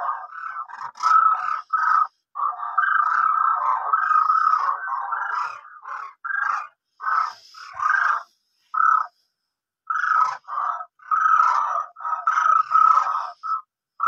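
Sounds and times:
short animal calls: 0.0 - 9.2.

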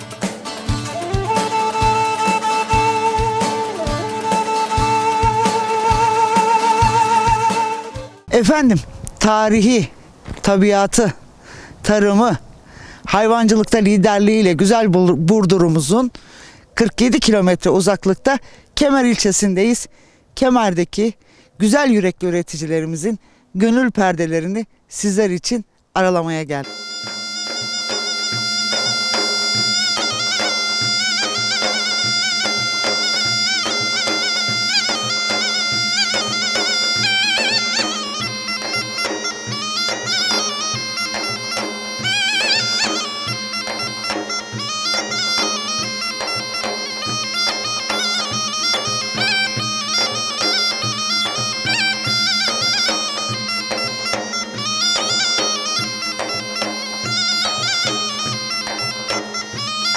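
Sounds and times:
bagpipe melody over drone: 0.0 - 8.3, 26.6 - 59.9.

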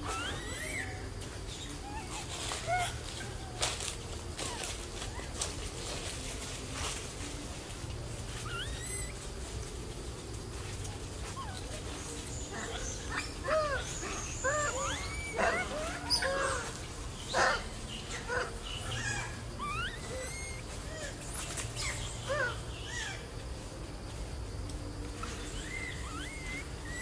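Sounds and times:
macaques cooing and squeaking: 0.0 - 6.2, 8.3 - 9.6, 10.7 - 23.4, 25.2 - 27.0
small birds chirping: 8.2 - 23.8, 25.1 - 27.0.

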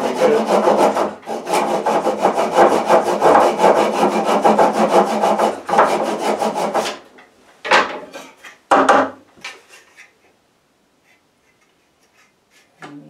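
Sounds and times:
hand saw cutting wood: 0.0 - 7.0, 11.4 - 12.8.

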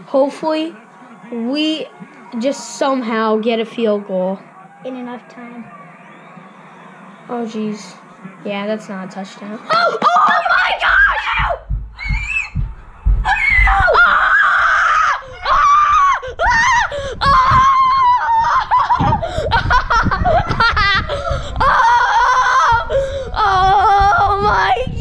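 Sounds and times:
people screaming and yelling: 0.0 - 25.0
laughter: 18.6 - 21.3.

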